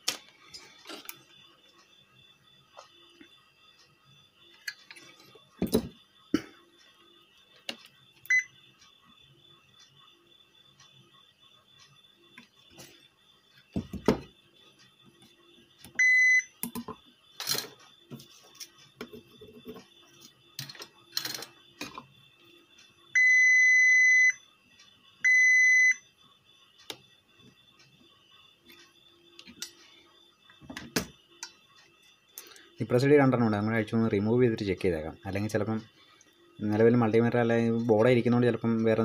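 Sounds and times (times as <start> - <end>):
multimeter continuity beeps: 0.0 - 39.0
thump: 13.8 - 14.3.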